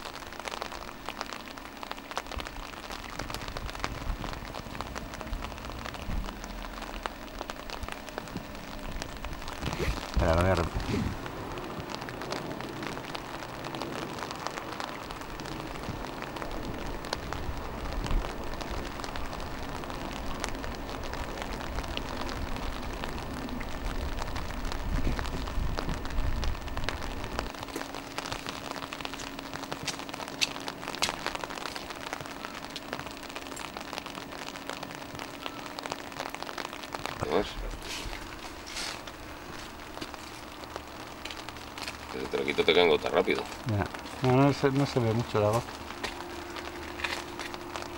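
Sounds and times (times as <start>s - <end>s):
rain hissing on stone: 0.0s - 47.9s
low rumble: 2.2s - 29.1s.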